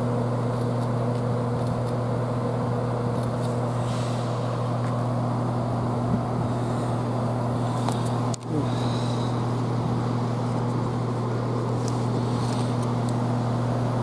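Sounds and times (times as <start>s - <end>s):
diesel train engines idling: 0.0s - 14.0s.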